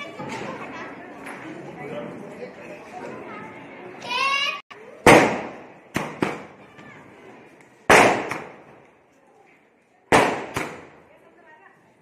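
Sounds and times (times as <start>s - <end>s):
firework bangs: 5.0s - 6.6s, 7.8s - 8.8s, 10.1s - 11.0s.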